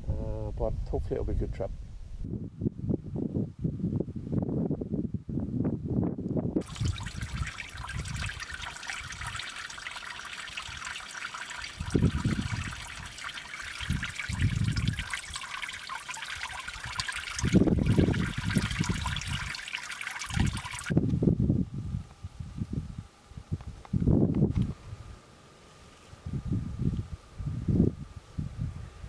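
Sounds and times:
wind buffeting microphone: 0:00.0 - 0:09.5, 0:11.6 - 0:15.5, 0:16.3 - 0:19.6, 0:20.3 - 0:25.2, 0:26.2 - 0:29.0
water trickling and dripping: 0:06.6 - 0:21.0.

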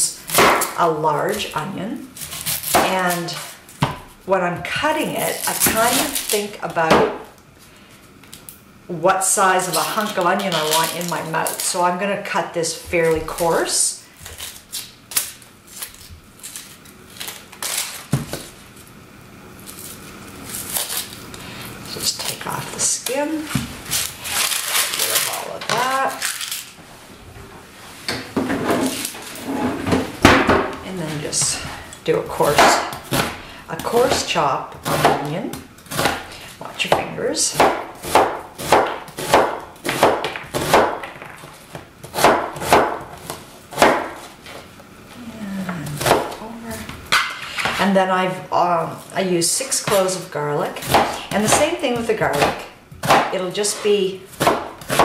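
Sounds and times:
onion skin crackling: 0:09.6 - 0:11.8, 0:13.3 - 0:19.0, 0:19.6 - 0:26.8
knife chopping on cutting board: 0:32.4 - 0:44.3, 0:46.0 - 0:46.4, 0:50.8 - 0:55.0.

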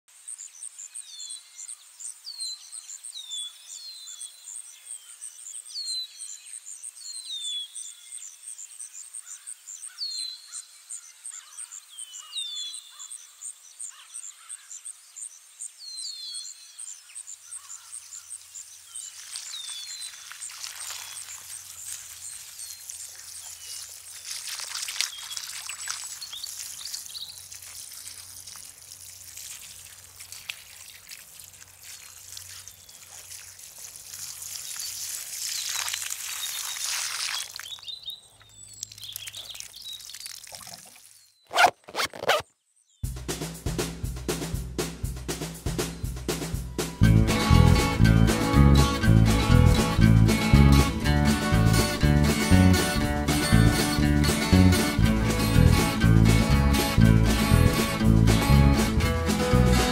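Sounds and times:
birds singing: 0:00.3 - 0:28.4, 0:31.8 - 0:33.4, 0:34.5 - 0:43.1
running water: 0:18.8 - 0:41.8.

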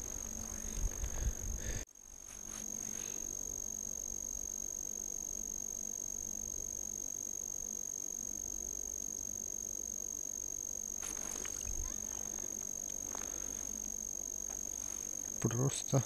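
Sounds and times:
low rumble of wind: 0:00.0 - 0:01.8.

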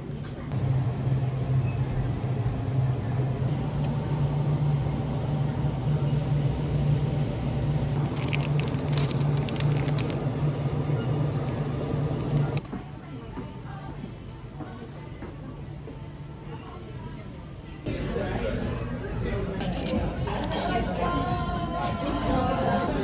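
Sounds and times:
steady low hum: 0:00.0 - 0:23.0
plastic bag crinkling: 0:08.0 - 0:10.5, 0:19.6 - 0:20.7.

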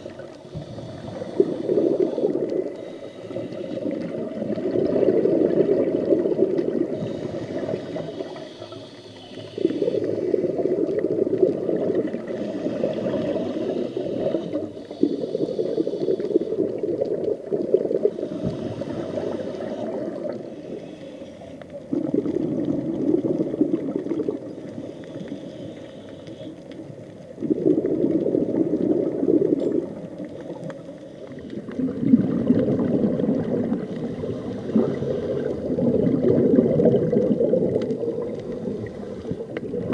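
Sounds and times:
regulator inhale hiss: 0:00.0 - 0:04.6, 0:06.8 - 0:10.7, 0:12.2 - 0:17.0, 0:18.0 - 0:21.9, 0:24.5 - 0:27.0, 0:30.1 - 0:31.8, 0:33.7 - 0:35.8, 0:38.2 - 0:39.6
underwater exhaled bubbles: 0:00.0 - 0:39.9.

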